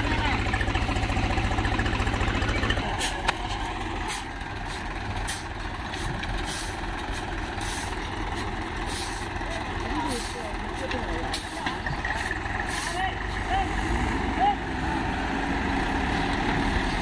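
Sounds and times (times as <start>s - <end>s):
tractor engine idling: 0.0s - 13.8s.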